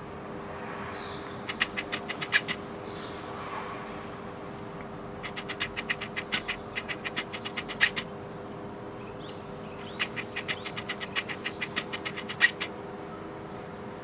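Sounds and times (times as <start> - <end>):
magpie chattering: 1.4 - 2.6, 5.2 - 8.1, 9.8 - 12.7.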